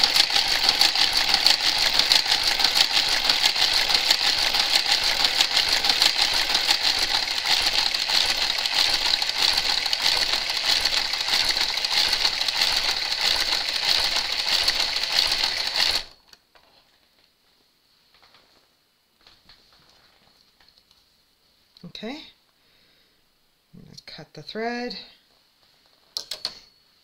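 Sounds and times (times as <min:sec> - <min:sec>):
knitting machine carriage clicking: 0:00.0 - 0:16.2.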